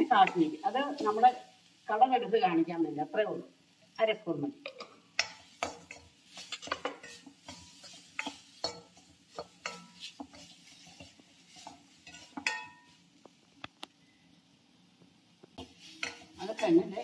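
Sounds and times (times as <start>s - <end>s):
spoon scraping and clinking in pan: 4.6s - 13.0s, 15.6s - 17.0s.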